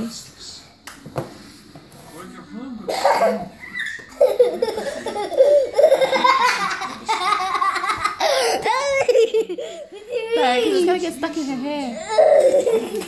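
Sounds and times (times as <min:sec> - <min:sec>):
young children laughing: 0:03.0 - 0:10.8, 0:12.1 - 0:13.0.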